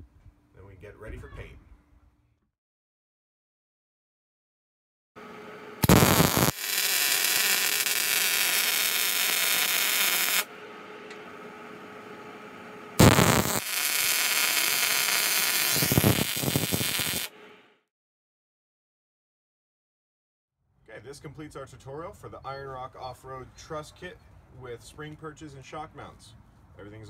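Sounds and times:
welding arc crackling and hissing: 5.8s - 10.5s, 13.0s - 17.3s.

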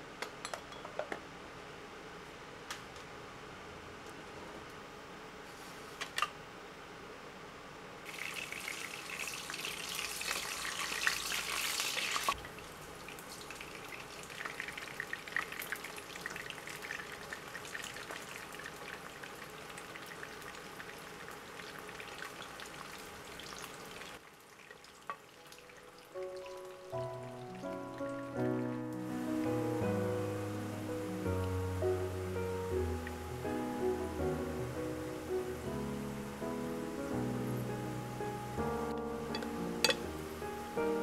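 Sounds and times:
dough sizzling in oil: 8.1s - 27.4s.

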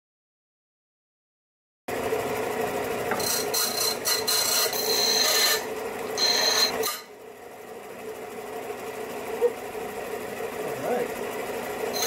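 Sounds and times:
disc sander motor hum: 1.9s - 12.0s
metal grinding rasp: 3.1s - 7.2s.

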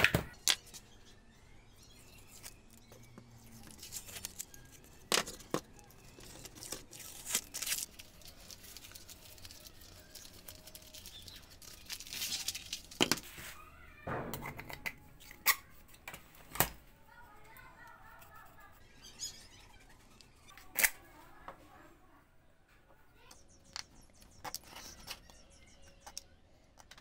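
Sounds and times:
wooden parts knocking down: 14.0s - 15.6s.

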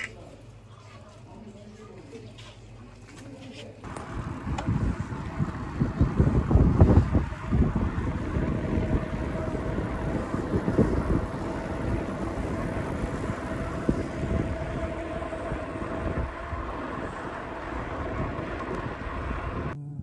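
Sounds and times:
bicycle tyres rolling on asphalt: 3.8s - 19.8s
wind rushing over microphone: 3.9s - 19.8s
faint steady whine: 3.9s - 20.0s.

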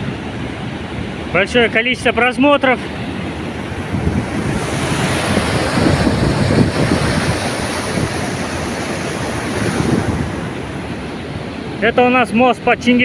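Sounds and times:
water rushing over weir: 0.0s - 13.0s
wind buffeting microphone: 2.8s - 11.8s.

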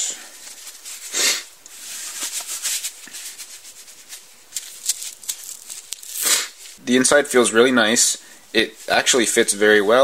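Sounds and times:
light scratchy brushes: 0.3s - 6.8s, 7.8s - 10.0s
leather glove rustling: 1.7s - 6.8s.

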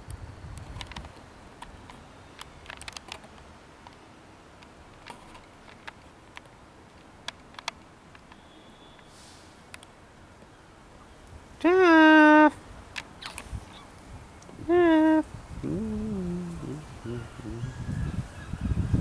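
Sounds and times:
faint sharp clicks and ticks: 4.6s - 8.4s, 9.7s - 10.5s.

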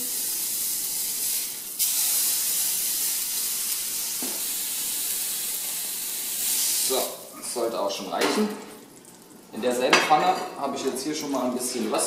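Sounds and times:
meat sizzling in a frying pan: 0.0s - 7.3s.

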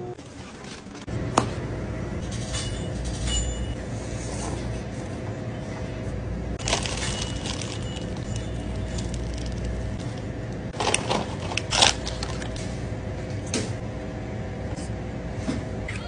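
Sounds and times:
low hum: 0.0s - 16.0s
plastic packaging crinkling: 6.6s - 12.6s.

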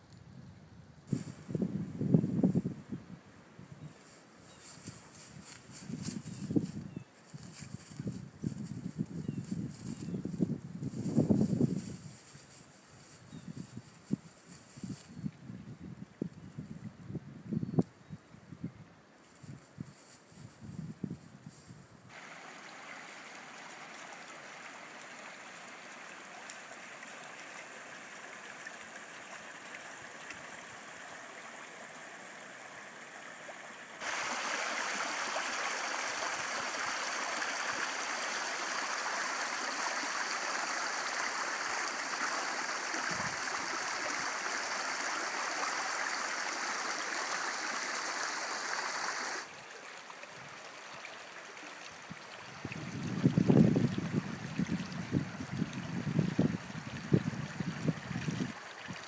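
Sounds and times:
creek running over stones: 22.1s - 59.0s.

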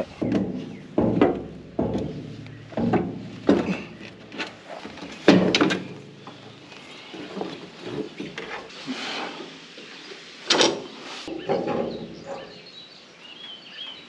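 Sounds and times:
sharp metal knocks: 0.0s - 6.4s
metal clunks and scrapes: 0.0s - 8.7s, 10.5s - 12.6s.

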